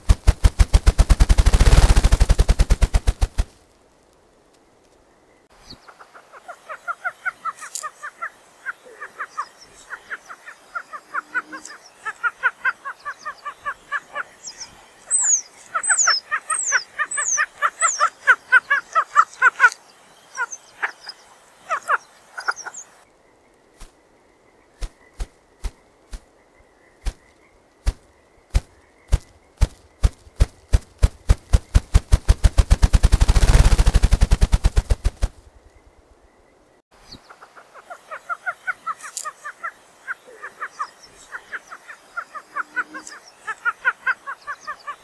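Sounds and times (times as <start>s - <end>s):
chorus of rapid calls: 0.0s - 3.4s, 31.3s - 35.3s
grouse wingbeat drumming: 0.0s - 3.5s, 27.9s - 35.4s.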